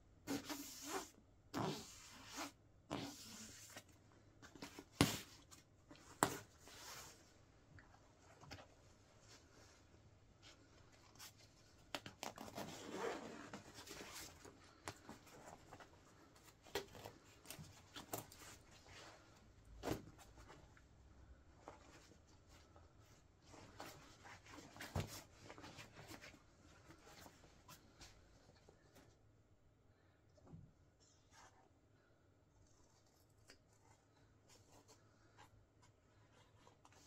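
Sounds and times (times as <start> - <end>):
jacket rustling: 4.4 - 20.8.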